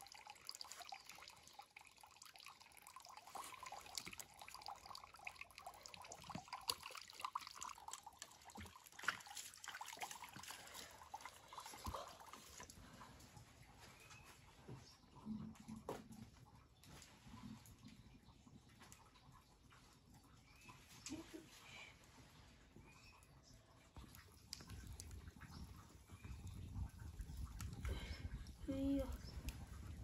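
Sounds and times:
ladle scooping and pouring water: 0:00.0 - 0:13.3
water splashing and dripping: 0:00.0 - 0:30.0.

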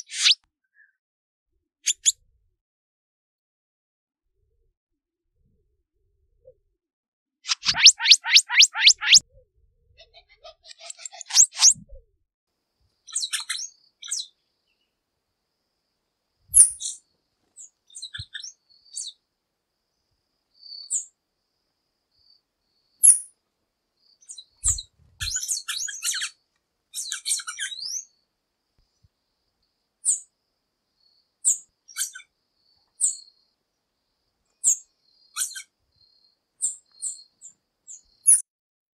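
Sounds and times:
bird twittering: 0:00.0 - 0:00.4, 0:07.5 - 0:09.2
bird calling high-pitched notes: 0:07.5 - 0:09.2.

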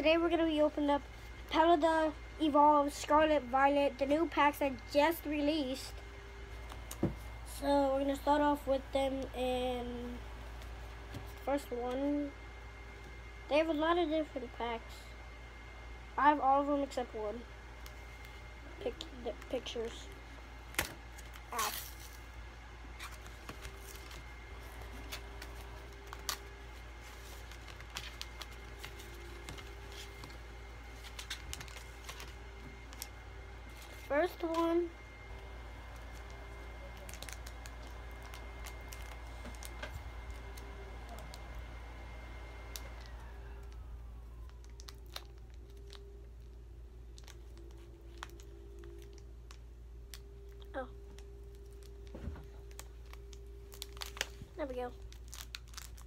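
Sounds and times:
low steady hum: 0:00.0 - 0:56.0
foil wrapper and cards rustling: 0:17.8 - 0:41.7, 0:42.6 - 0:56.0.

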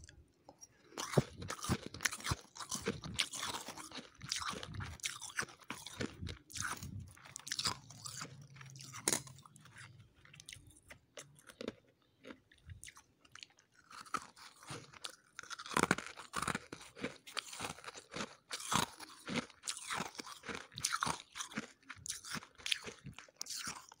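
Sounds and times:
frost being chewed: 0:00.0 - 0:24.0.

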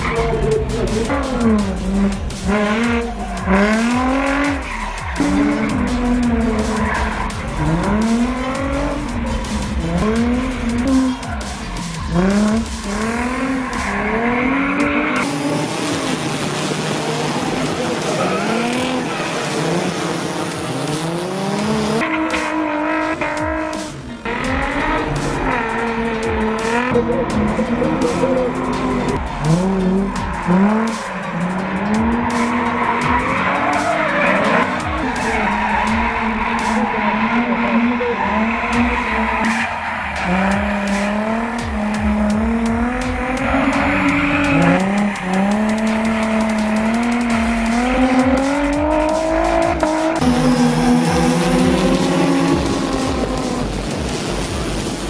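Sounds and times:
car engine revving: 0:00.0 - 0:55.0
tyres squealing: 0:24.5 - 0:53.6.

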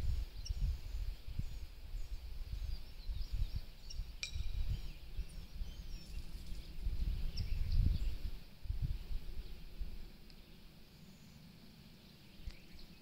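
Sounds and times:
birds chirping: 0:00.4 - 0:08.3, 0:09.0 - 0:13.0
metallic clink: 0:04.2 - 0:04.6.

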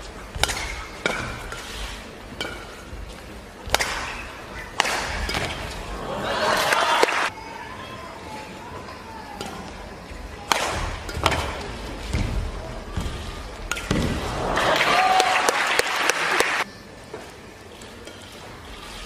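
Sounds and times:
rackets smacking shuttlecock: 0:00.2 - 0:05.8, 0:10.4 - 0:12.4, 0:13.0 - 0:14.9
crowd cheering and applauding: 0:06.1 - 0:07.3, 0:14.2 - 0:16.6.

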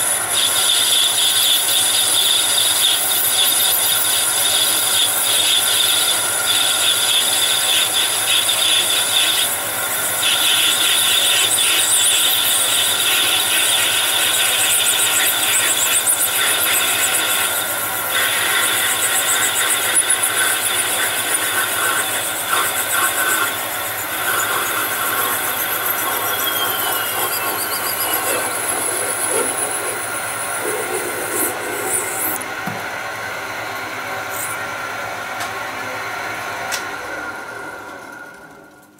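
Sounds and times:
lathe spindle noise: 0:00.0 - 0:32.4
lathe high-pitched cutting whine: 0:00.0 - 0:38.9.

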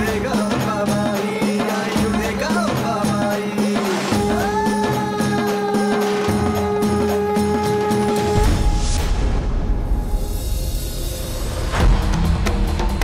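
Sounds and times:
rattling folk percussion: 0:00.0 - 0:09.1
low drone: 0:08.4 - 0:13.0.

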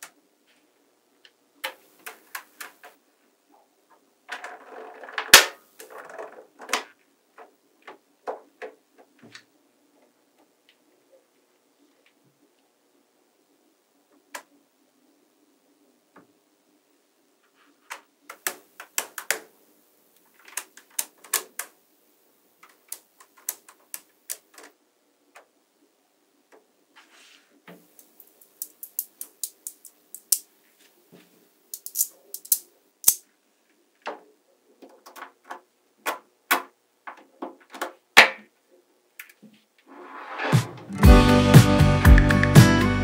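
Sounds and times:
magnetic balls clicking: 0:28.0 - 0:30.5, 0:31.7 - 0:33.2.

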